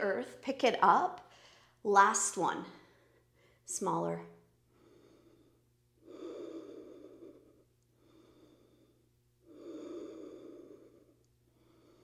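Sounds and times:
woman breathing hard: 0:04.7 - 0:12.0.

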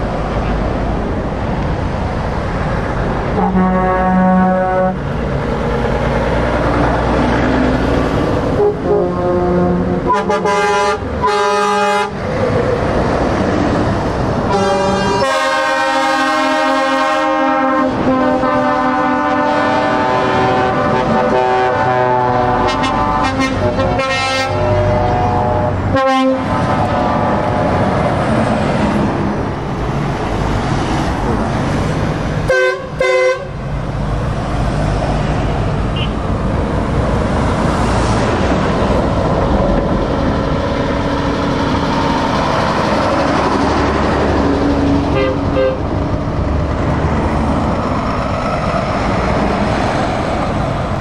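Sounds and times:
heavy trucks passing: 0:00.0 - 0:51.0
truck air horn blasts: 0:03.4 - 0:05.1, 0:08.6 - 0:12.2, 0:14.5 - 0:27.6, 0:32.5 - 0:33.6, 0:35.9 - 0:36.2, 0:45.1 - 0:45.8.

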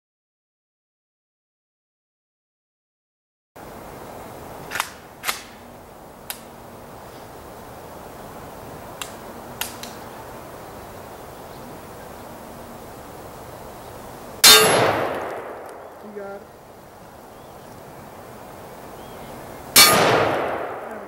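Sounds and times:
outdoor background hiss: 0:03.6 - 0:21.0
short sharp cracks: 0:04.7 - 0:05.6, 0:09.0 - 0:10.0, 0:14.4 - 0:16.1.

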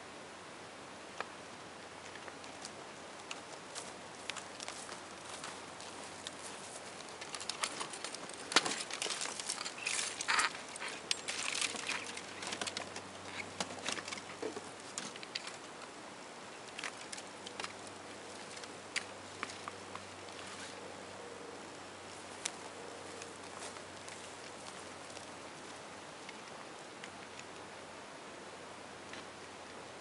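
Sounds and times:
plastic laptop clicks and creaks: 0:07.2 - 0:15.6.

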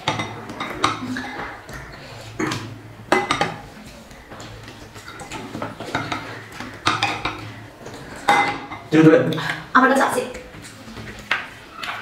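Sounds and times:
spoon scraping and clinking plates: 0:00.0 - 0:09.0.

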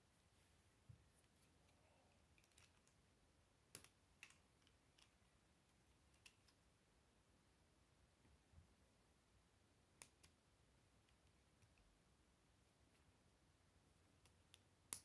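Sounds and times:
plastic pieces clicking together: 0:02.3 - 0:03.0.

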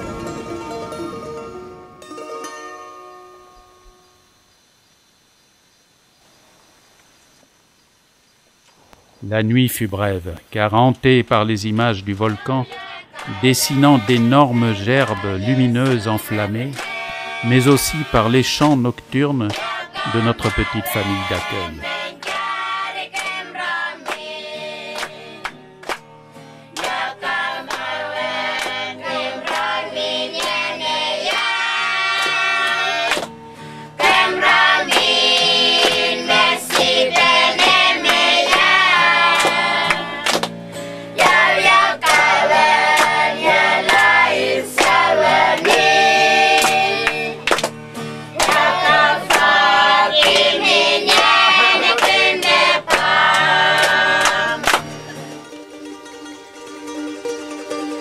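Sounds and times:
group singing together: 0:11.6 - 0:26.0, 0:26.7 - 0:40.5, 0:41.1 - 0:55.3.

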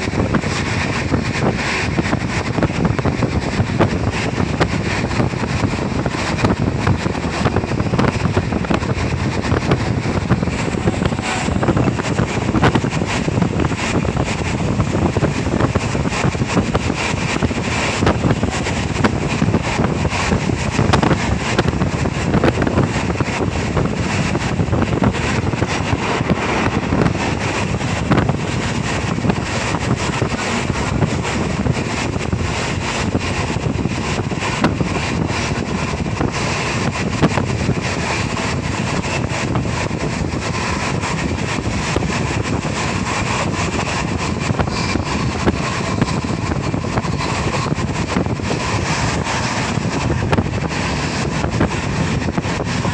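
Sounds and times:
vehicle running noise: 0:00.0 - 0:52.9
wind rushing on microphone: 0:00.0 - 0:52.9.

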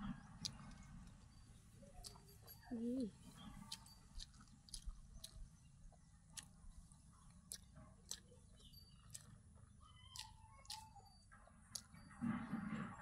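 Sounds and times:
faint chewing: 0:00.0 - 0:12.5
small mouth clicks: 0:01.9 - 0:05.6, 0:06.3 - 0:09.3, 0:10.1 - 0:11.0, 0:11.7 - 0:12.0.

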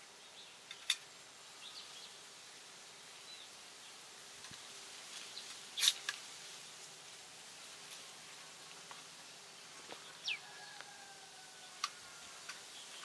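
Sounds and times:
faint steady hiss: 0:00.0 - 0:13.0
small metal clicks: 0:00.7 - 0:01.1.

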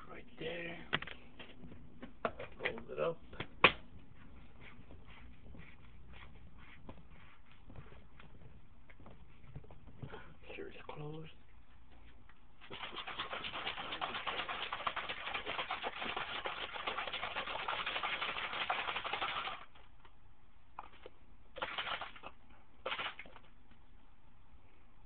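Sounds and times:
bottle shaking with rattle: 0:12.6 - 0:19.8, 0:20.8 - 0:23.5.

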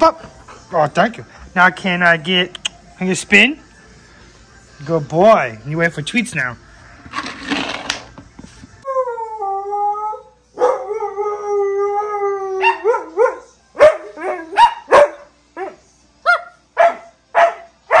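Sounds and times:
dog howling: 0:08.8 - 0:14.7
dog yipping and barking: 0:12.6 - 0:18.0.

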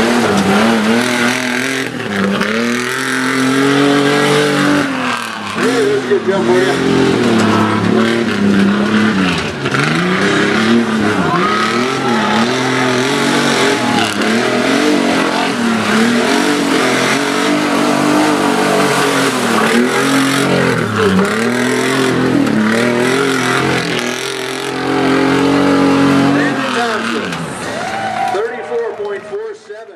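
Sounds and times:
truck engine revving: 0:00.0 - 0:28.4.

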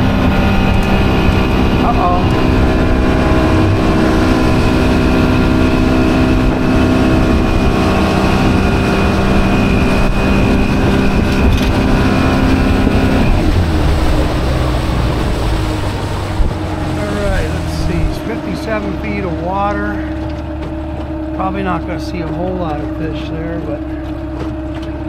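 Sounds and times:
wind noise: 0:00.0 - 0:19.2
outboard motor running: 0:00.0 - 0:25.0
water noise: 0:00.0 - 0:25.0.

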